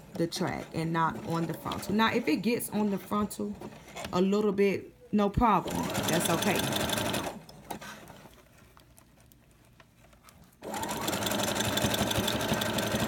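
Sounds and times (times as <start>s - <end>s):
sewing machine running: 5.6s - 8.1s, 10.6s - 13.0s.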